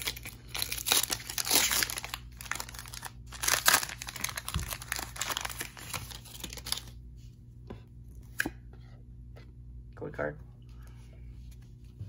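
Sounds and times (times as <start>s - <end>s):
foil wrapper crinkling: 0.0s - 6.9s.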